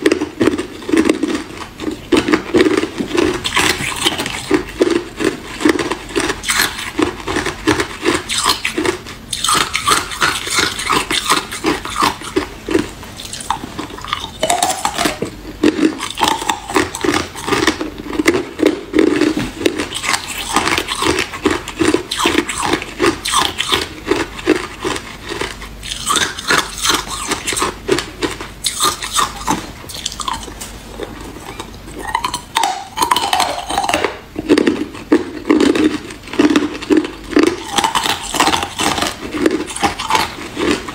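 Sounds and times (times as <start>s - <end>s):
ice cubes crunching: 0.0s - 40.9s.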